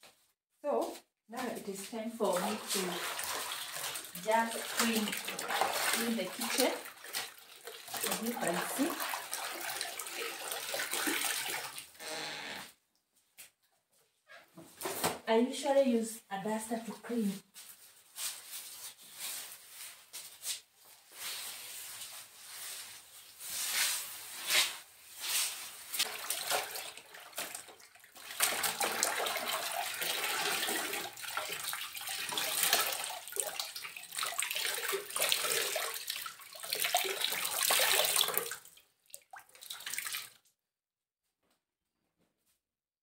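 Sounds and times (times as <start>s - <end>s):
wet cloth swishes: 2.2s - 11.5s
water streaming into bucket: 2.2s - 12.0s, 26.0s - 40.4s.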